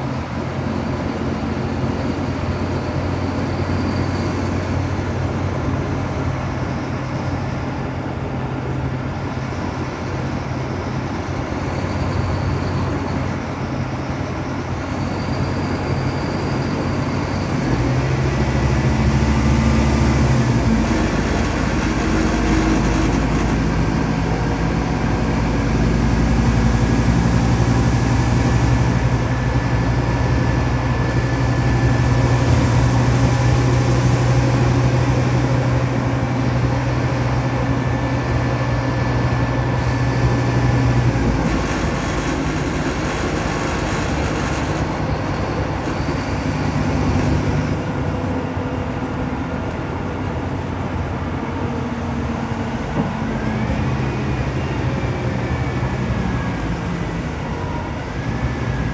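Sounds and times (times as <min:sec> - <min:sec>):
bus diesel engine running: 0:00.0 - 0:58.9
high gearbox whine: 0:09.4 - 0:24.7, 0:37.8 - 0:48.2.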